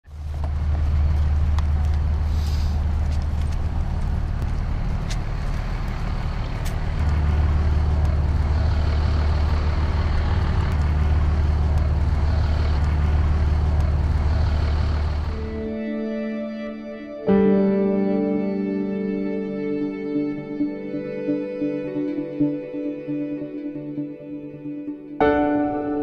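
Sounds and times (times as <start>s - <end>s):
low rumble of road traffic: 0.0s - 26.0s
hiss of city noise: 0.1s - 15.8s.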